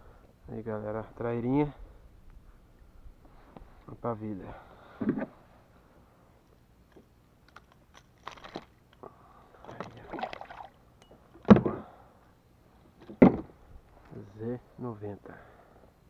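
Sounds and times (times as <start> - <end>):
fish splashing into water: 9.8 - 10.8.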